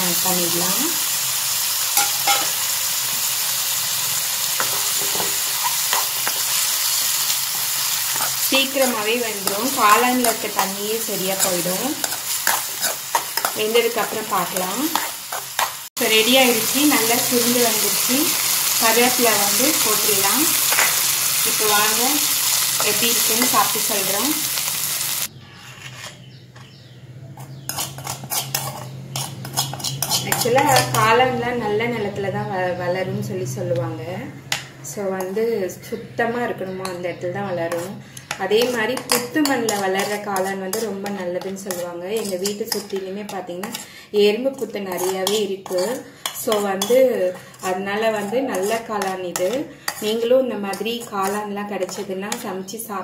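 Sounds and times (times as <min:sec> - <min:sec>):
food sizzling in hot oil: 0:00.0 - 0:25.3
steel spoon scraping pan: 0:01.9 - 0:02.7, 0:04.2 - 0:24.3, 0:25.4 - 0:26.8, 0:27.4 - 0:31.1, 0:37.7 - 0:44.0, 0:44.6 - 0:52.1
metal spoon clinking against dish: 0:02.0 - 0:02.6, 0:27.4 - 0:31.0, 0:37.7 - 0:43.8, 0:44.9 - 0:52.4.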